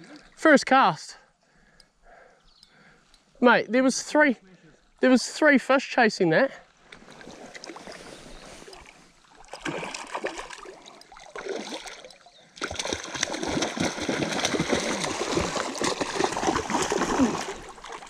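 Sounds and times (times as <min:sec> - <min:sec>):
fish splashing in water: 0:07.0 - 0:18.0.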